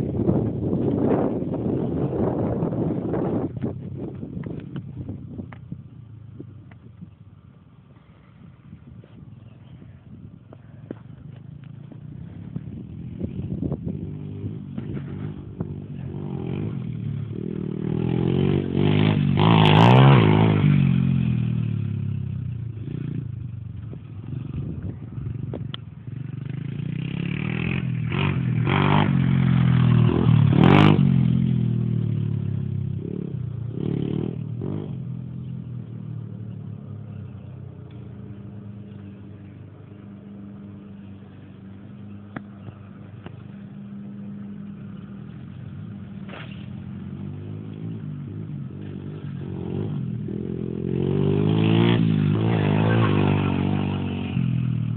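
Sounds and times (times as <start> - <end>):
small off-road engine revving: 11.2 - 54.9.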